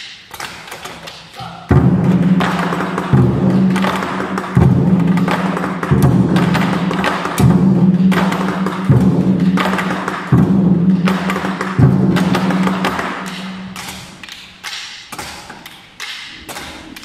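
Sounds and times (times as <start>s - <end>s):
large drums booming: 1.7s - 13.8s
sharp drum taps: 1.7s - 14.1s.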